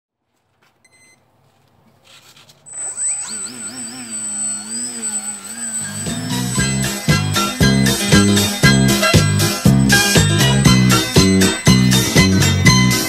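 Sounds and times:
electric motor and propeller whine: 2.6 - 13.0
music with a beat: 6.1 - 13.0.

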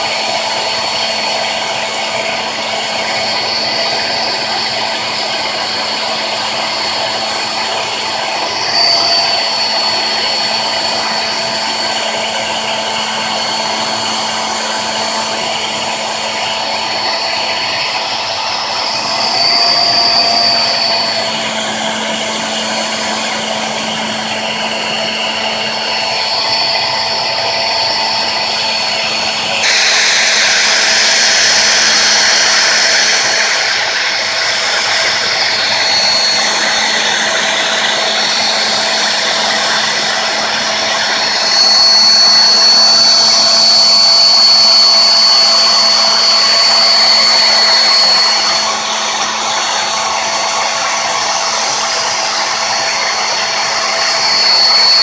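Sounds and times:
hair dryer running: 0.0 - 55.0.

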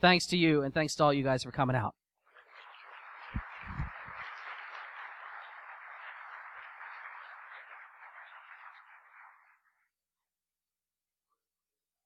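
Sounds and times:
audience applauding: 2.3 - 9.9.

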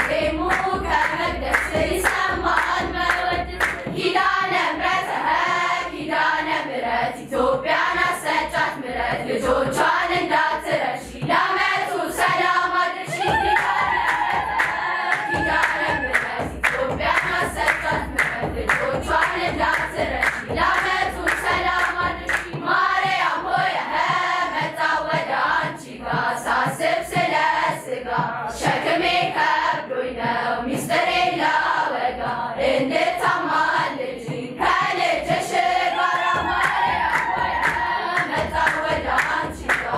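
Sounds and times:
hands clapping: 0.0 - 4.0, 13.0 - 22.6, 34.7 - 39.9
girls choir singing a hymn: 0.0 - 39.9.

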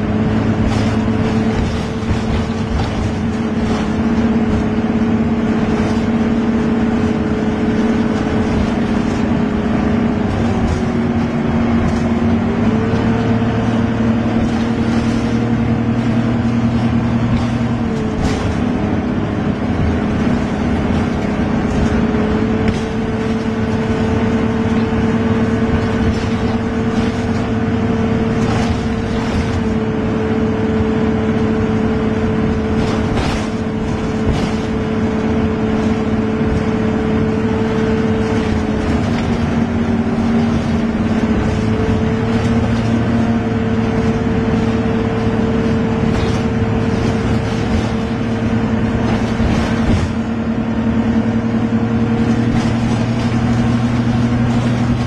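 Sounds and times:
vehicle engine running: 0.0 - 55.0.

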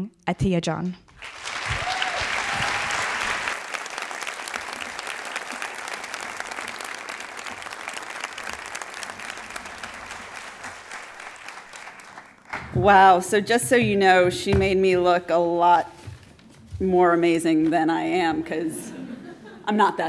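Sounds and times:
large audience applauding: 1.1 - 12.7.

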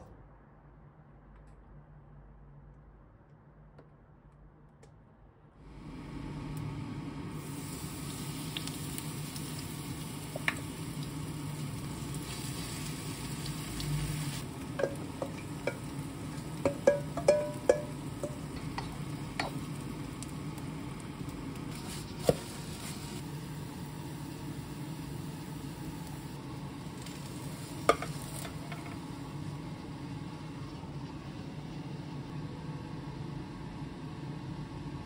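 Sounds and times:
oil sizzling in a frying pan: 5.8 - 32.1.

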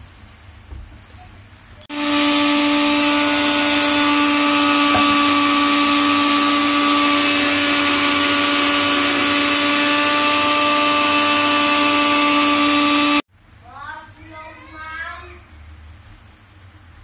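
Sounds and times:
mixer grinder motor running: 1.9 - 13.2.

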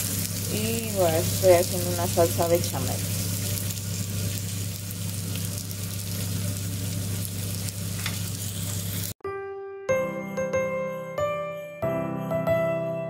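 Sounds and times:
fish sizzling in a frying pan: 0.0 - 9.2
music with bell-like tones: 9.3 - 13.0.

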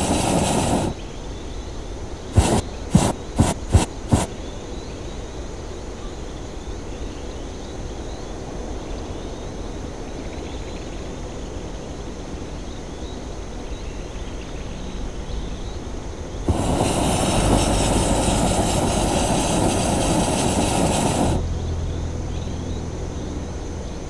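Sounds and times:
steady low rumble: 16.5 - 24.0.

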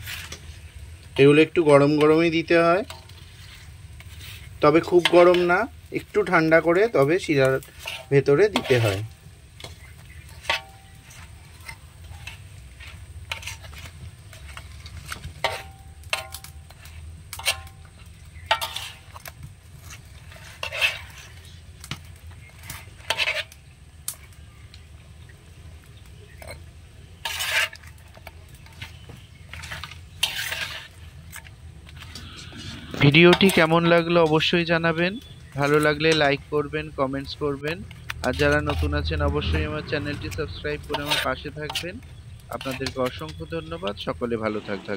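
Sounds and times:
metal spoon scraping steel bowl: 7.2 - 17.8, 18.4 - 21.5, 22.4 - 23.5, 27.2 - 28.0, 28.6 - 36.5, 37.2 - 44.9.

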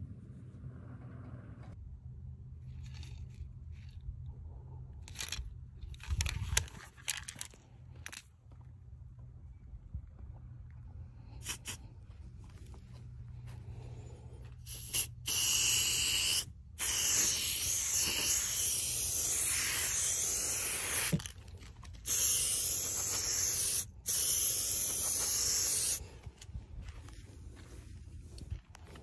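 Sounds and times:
spray paint can hissing: 11.4 - 11.8, 14.7 - 21.3, 22.0 - 26.0.

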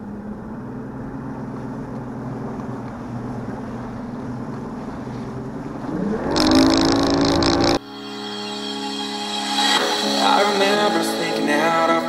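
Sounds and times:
outboard motor running: 0.0 - 7.8
rush of noise: 4.8 - 11.4.

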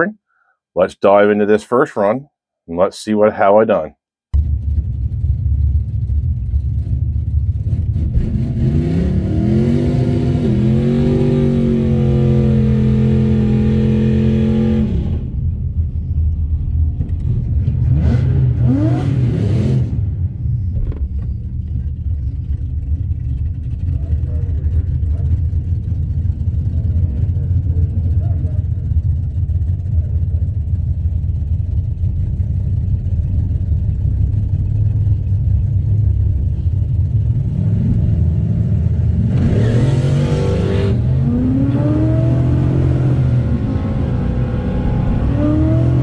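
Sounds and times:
car engine idling deeply: 4.4 - 8.0, 15.2 - 17.8, 20.2 - 39.2
engine revving: 6.8 - 16.1, 16.9 - 21.3, 36.6 - 46.0.

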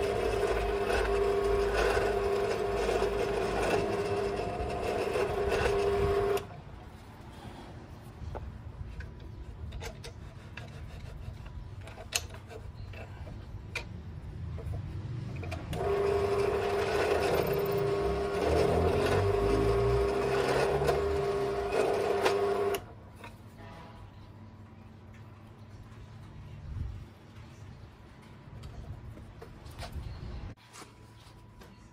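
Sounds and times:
small electric motor running: 0.0 - 6.5, 15.8 - 22.8.

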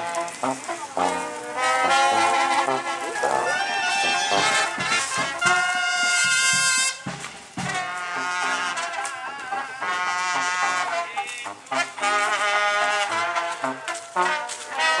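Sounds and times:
brass band playing: 0.0 - 15.0.

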